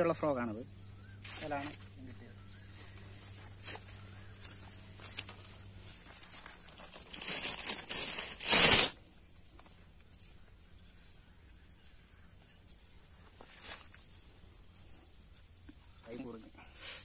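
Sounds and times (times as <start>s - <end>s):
cloth rustling on microphone: 2.7s - 9.0s.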